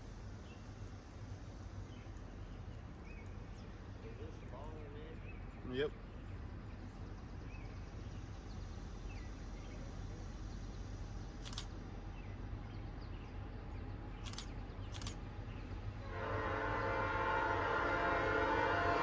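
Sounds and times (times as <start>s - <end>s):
steady low rumble: 0.0s - 16.9s
sharp clicks: 11.4s - 11.8s, 14.2s - 15.2s
locomotive air horn: 16.0s - 19.0s.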